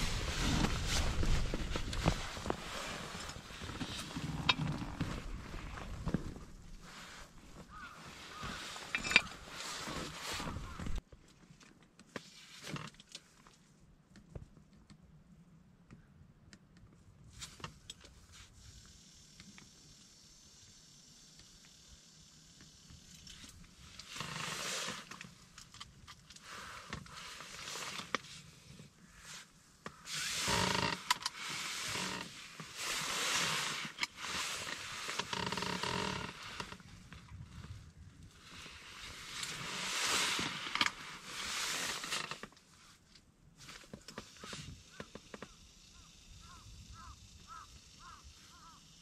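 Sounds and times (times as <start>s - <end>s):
electric fishing reel whirring: 30.1s - 32.3s.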